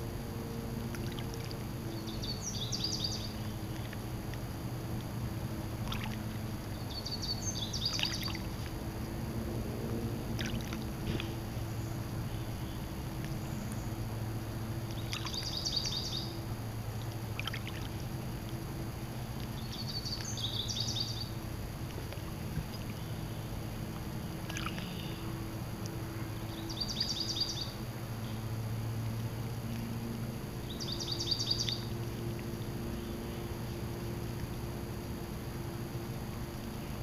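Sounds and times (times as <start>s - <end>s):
water lapping against shore: 0.0s - 37.0s
small bird singing: 1.9s - 4.0s, 6.7s - 8.5s, 14.9s - 16.4s, 19.5s - 21.4s, 26.3s - 28.4s, 30.6s - 32.3s.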